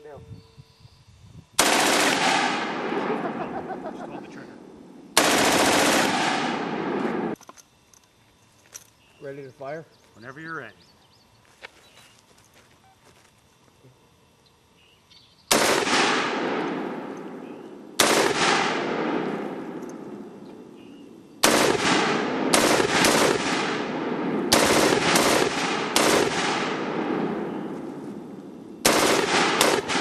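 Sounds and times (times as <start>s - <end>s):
machine gun firing bursts: 1.6s - 3.4s, 5.2s - 7.4s, 15.5s - 17.1s, 18.0s - 19.7s, 21.4s - 27.4s, 28.8s - 30.0s
gunfire echo: 1.6s - 4.0s, 5.2s - 7.4s, 15.5s - 20.4s, 21.4s - 30.0s.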